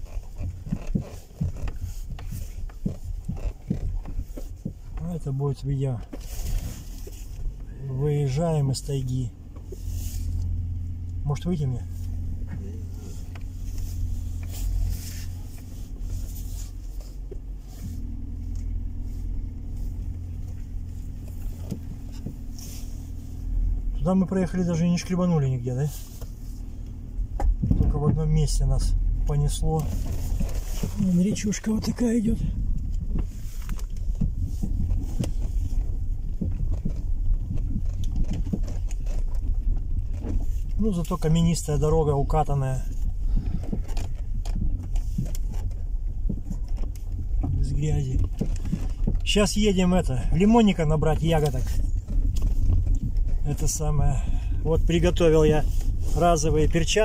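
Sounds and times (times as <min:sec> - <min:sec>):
stones knocking under tyres: 0:00.0 - 0:05.3, 0:29.8 - 0:41.7
stones knocking under car: 0:00.0 - 0:07.7, 0:26.1 - 0:57.0
tyres rumbling on dirt road: 0:00.0 - 0:57.0.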